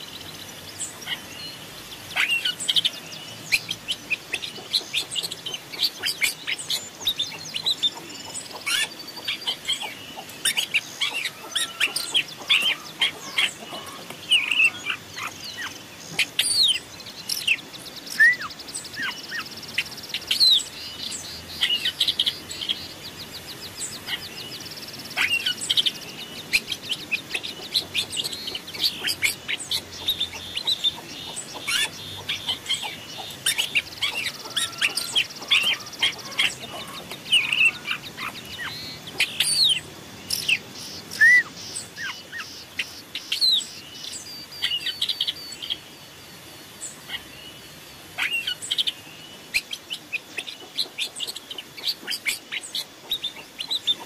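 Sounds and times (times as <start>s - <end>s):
songbirds chirping and whistling: 0.0s - 54.0s
rapid high bird trills: 25.1s - 43.8s.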